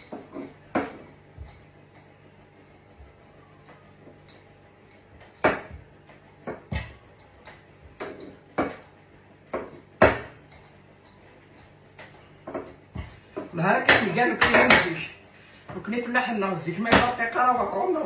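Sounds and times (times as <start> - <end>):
rolling pin knocking on wooden table: 5.4 - 7.0, 9.5 - 10.4.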